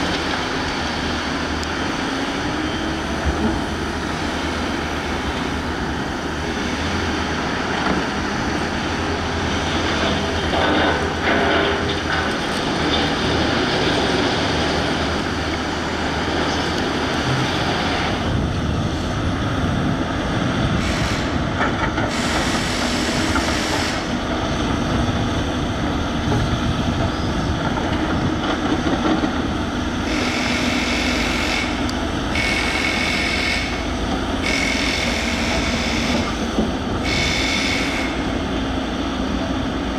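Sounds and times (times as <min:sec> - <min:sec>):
excavator engine and hydraulics: 0:00.0 - 0:39.9
high-pitched hydraulic noise: 0:20.8 - 0:21.5, 0:22.1 - 0:24.2, 0:30.0 - 0:38.5.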